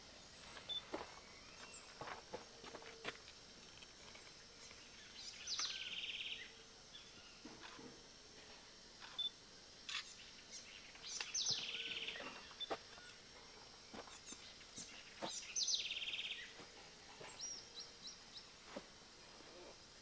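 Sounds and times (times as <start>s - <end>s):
songbird trilling song: 4.1s - 7.5s, 9.1s - 13.2s, 13.9s - 16.6s.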